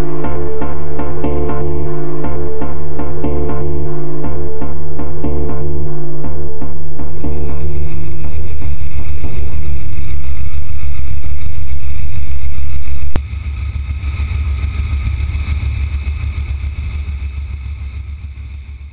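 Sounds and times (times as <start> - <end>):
helicopter engine and rotor noise: 13.2 - 18.9.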